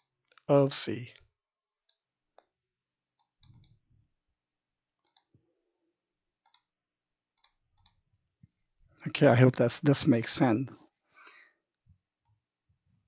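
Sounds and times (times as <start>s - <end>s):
computer mouse clicks: 3.2s - 3.8s, 5.0s - 5.4s, 6.4s - 6.7s, 7.4s - 8.0s.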